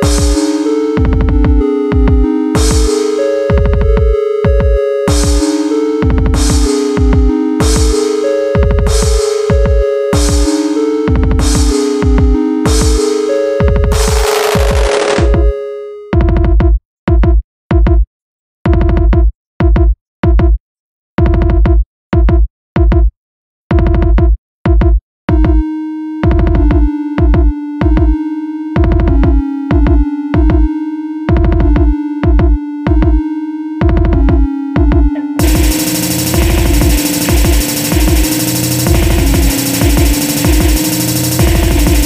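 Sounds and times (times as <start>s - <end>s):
synth and bass stabs: 0.0s - 15.4s, 34.1s - 42.0s
held synth tone: 35.0s - 42.0s.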